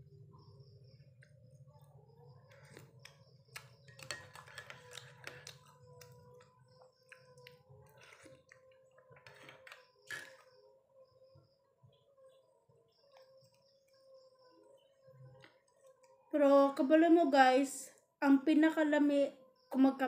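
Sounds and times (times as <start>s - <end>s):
faint steady hum: 0.0s - 20.0s
sipping and slurping: 7.4s - 10.4s.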